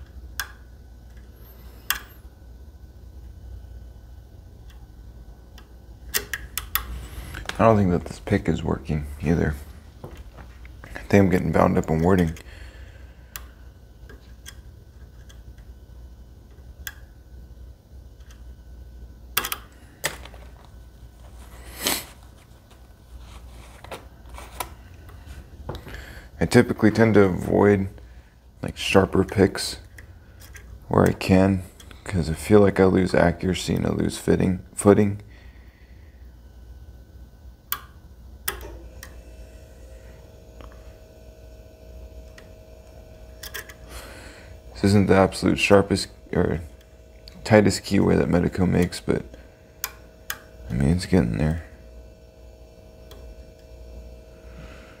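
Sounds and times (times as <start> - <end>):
lock pick metallic clicks: 19.4 - 20.2, 43.4 - 43.8.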